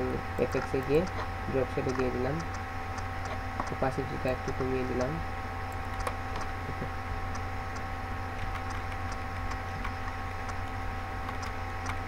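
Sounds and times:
electrical hum and hiss: 0:00.0 - 0:12.0
computer mouse clicks: 0:05.7 - 0:06.5, 0:07.3 - 0:12.0.

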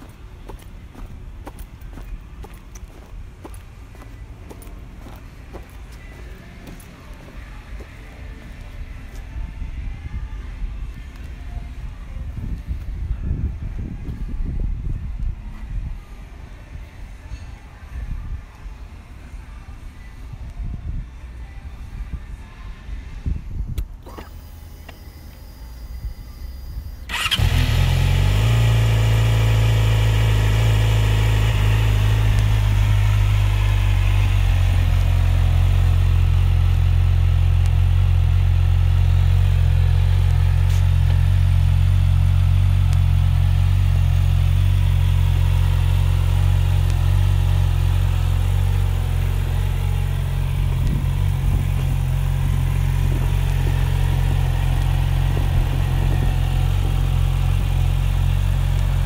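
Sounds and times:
motorcycle engine starting and idling: 0:23.8 - 0:59.0.

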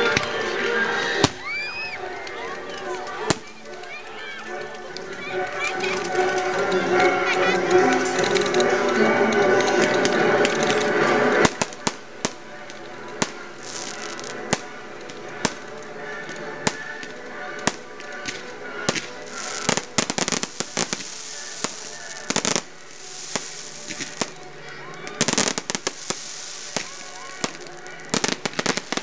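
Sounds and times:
rapid firework crackling: 0:00.0 - 0:04.1, 0:05.3 - 0:29.0
firework reports: 0:00.0 - 0:29.0
firework hissing: 0:09.8 - 0:12.4, 0:13.2 - 0:15.7, 0:16.6 - 0:24.5, 0:25.1 - 0:29.0.

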